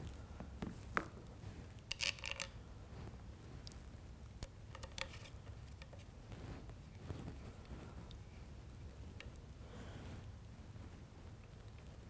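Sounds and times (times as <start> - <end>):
allen wrench clicking and scraping: 1.9 - 2.5.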